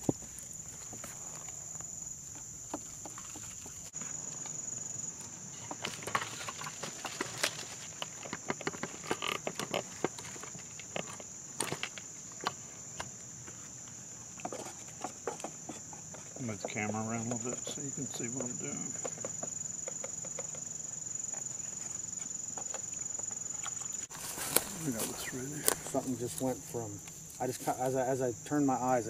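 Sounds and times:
high-pitched insect drone: 16.4s - 29.0s.

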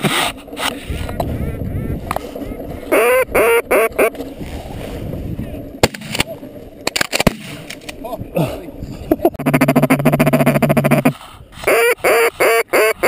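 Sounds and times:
duck quacking: 1.0s - 4.1s, 9.4s - 13.0s.

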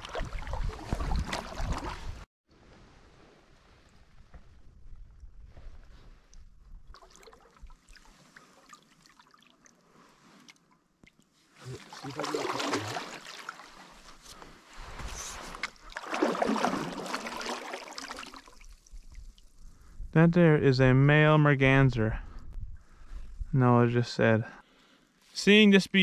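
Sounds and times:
paddle splashing in water: 0.0s - 2.2s, 11.6s - 14.1s, 15.4s - 19.0s.

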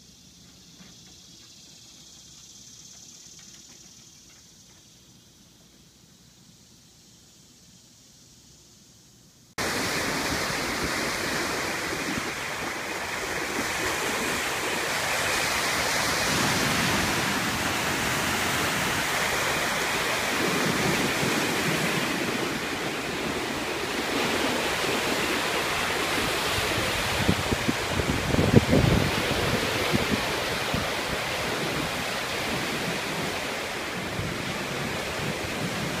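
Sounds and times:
waves breaking on shore: 9.6s - 36.0s
wind buffeting microphone: 9.6s - 36.0s.

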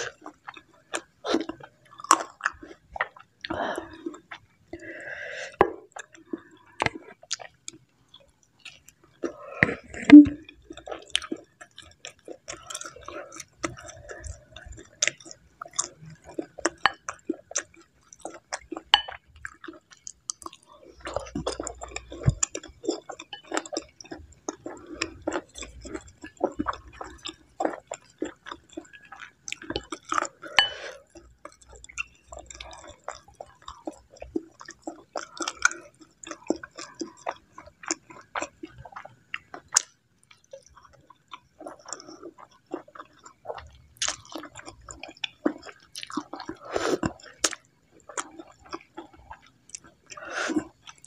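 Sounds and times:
close chewing: 0.0s - 51.0s
wet mouth sounds: 9.2s - 11.3s.

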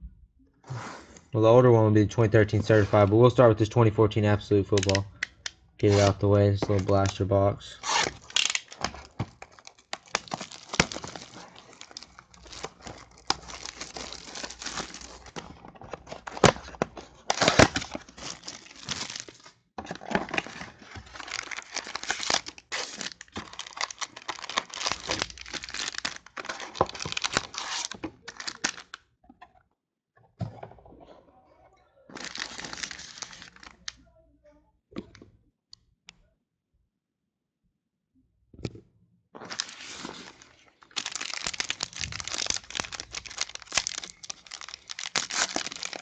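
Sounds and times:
foil packs crinkling: 4.8s - 5.1s, 5.8s - 29.0s, 32.1s - 33.9s, 39.4s - 46.0s
cardboard box tearing: 7.8s - 8.8s, 17.3s - 28.8s.

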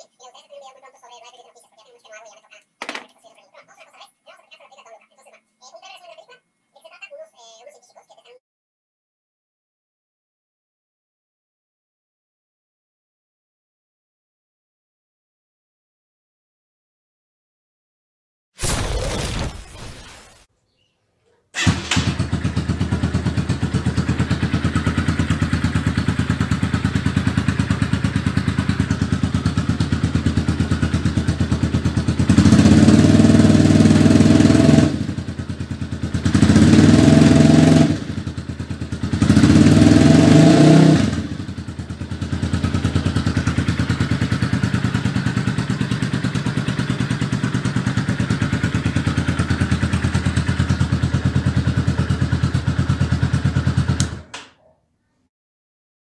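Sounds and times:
motorcycle engine idling and revving: 21.6s - 54.2s.

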